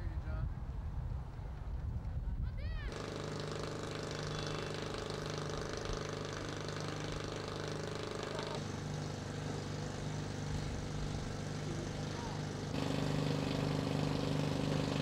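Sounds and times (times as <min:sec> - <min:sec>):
engine drone: 0:02.9 - 0:15.0.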